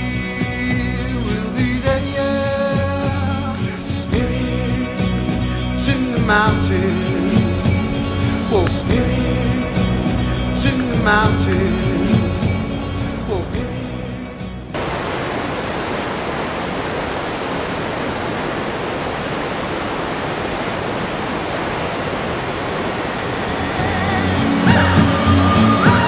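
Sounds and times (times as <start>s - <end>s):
music: 0.0s - 14.8s, 23.6s - 26.0s
waterfall rushing: 14.7s - 26.0s.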